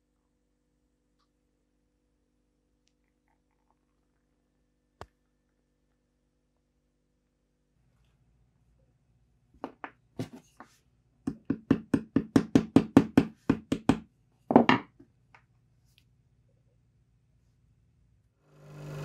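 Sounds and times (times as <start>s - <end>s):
knocks on wooden bench: 13.5s - 14.9s.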